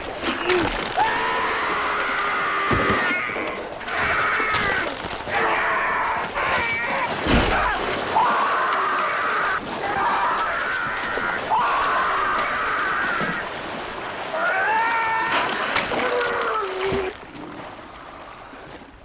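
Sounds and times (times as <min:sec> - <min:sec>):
man screaming in agony: 0:00.4 - 0:13.4.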